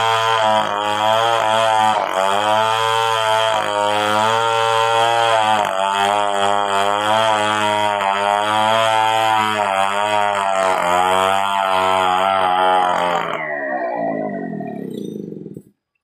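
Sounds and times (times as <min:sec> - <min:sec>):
chainsaw cutting log: 0:00.0 - 0:15.8.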